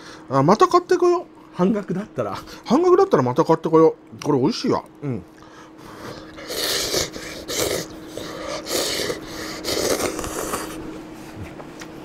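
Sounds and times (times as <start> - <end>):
man slurping noodles: 5.9 - 10.9.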